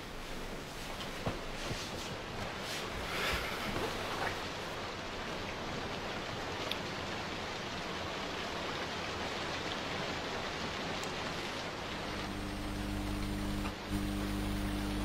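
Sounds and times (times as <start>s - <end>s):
steady hiss: 0.0s - 15.0s
low steady hum: 11.5s - 15.0s.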